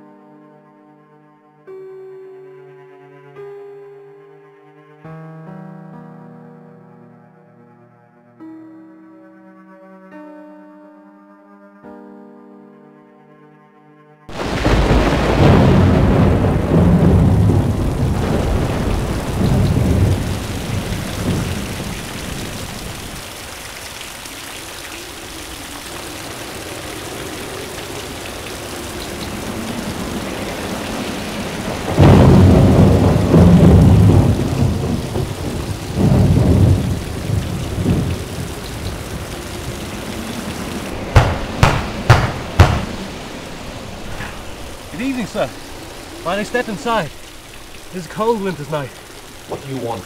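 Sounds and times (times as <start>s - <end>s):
loud thunderclap: 14.3s - 23.2s, 27.4s - 46.4s
thunder rumbling: 14.3s - 23.7s, 25.0s - 49.5s
heavy rain falling: 14.3s - 50.0s
sharp knocks: 41.1s - 43.1s.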